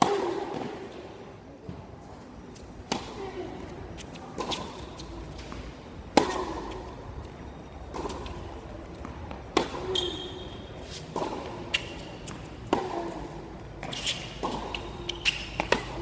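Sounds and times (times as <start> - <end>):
racket hitting tennis ball: 0.0 - 0.9, 2.9 - 3.2, 4.4 - 7.0, 7.9 - 16.0
tennis ball bouncing: 2.9 - 3.2, 4.0 - 16.0.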